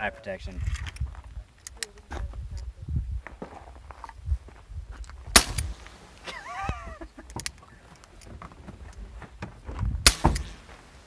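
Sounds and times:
suppressed gunshot: 0:05.3 - 0:05.8, 0:10.0 - 0:10.6.

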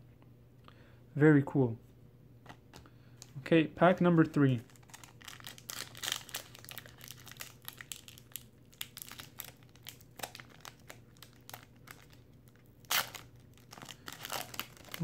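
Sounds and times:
foil wrapper crinkling: 0:04.6 - 0:15.0.

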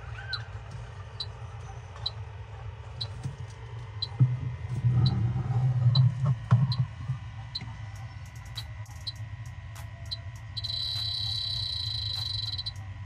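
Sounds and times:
low hum: 0:00.0 - 0:13.0
leak detector beeping slowly: 0:10.0 - 0:12.9.

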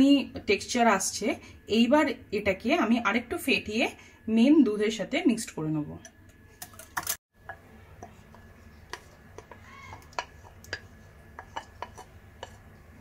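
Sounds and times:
whisk clicking against glass bowl: 0:06.6 - 0:12.6.

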